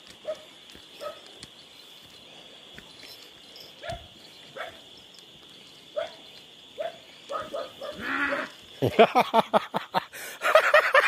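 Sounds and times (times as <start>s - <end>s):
animal calls: 6.8s - 8.7s.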